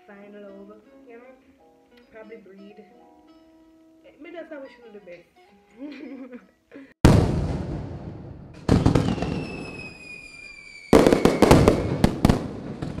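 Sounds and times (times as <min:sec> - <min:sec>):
firework bangs: 0:07.0 - 0:13.0
firework crackling: 0:07.1 - 0:13.0
falling firework whistle: 0:08.7 - 0:13.0.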